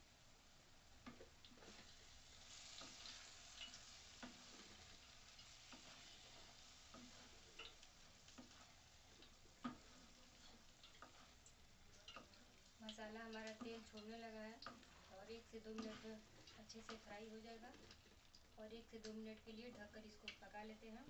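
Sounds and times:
faint frying sizzle: 0:00.0 - 0:21.0
wooden spatula scraping a pan: 0:01.0 - 0:18.2
spatula knocking against pan: 0:06.9 - 0:10.2.

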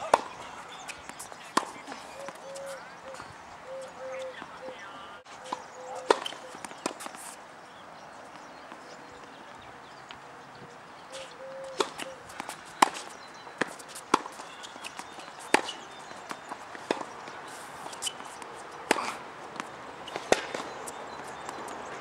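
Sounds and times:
tennis ball bouncing: 0:00.0 - 0:03.4, 0:05.5 - 0:07.3, 0:11.2 - 0:22.0
tennis racquets hitting ball: 0:00.0 - 0:03.4, 0:05.5 - 0:07.4, 0:11.2 - 0:22.0.

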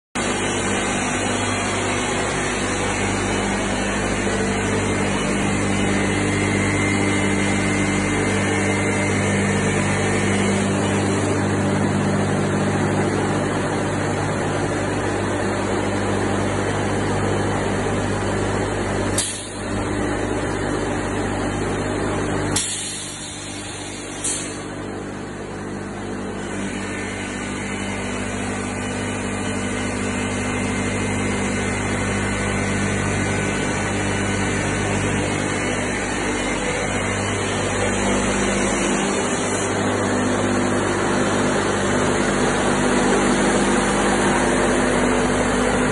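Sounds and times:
sawing machine motor hum: 0:00.2 - 0:45.9
pneumatic air hisses: 0:19.2 - 0:19.6, 0:22.6 - 0:24.7.

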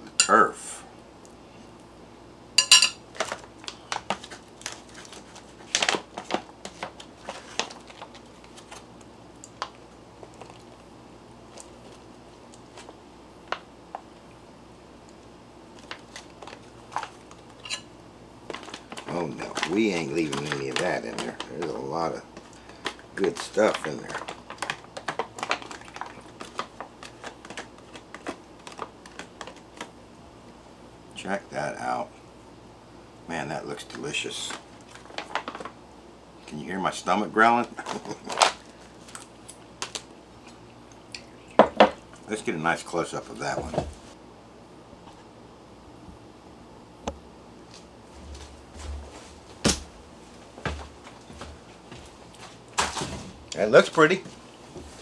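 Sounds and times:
fork clinking on a plate: 0:02.6 - 0:03.0
foil food pouch crinkling: 0:03.1 - 0:10.8, 0:15.7 - 0:17.7, 0:18.5 - 0:29.9, 0:34.4 - 0:35.8, 0:37.6 - 0:40.6.

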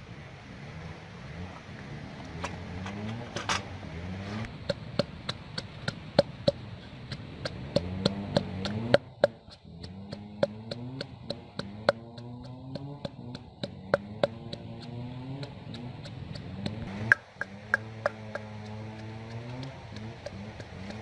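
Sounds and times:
pestle pounding in mortar: 0:04.5 - 0:21.0.

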